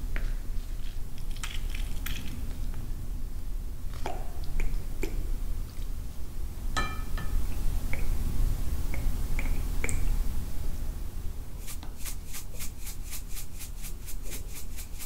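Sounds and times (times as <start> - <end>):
ringing clink: 6.8 - 7.3.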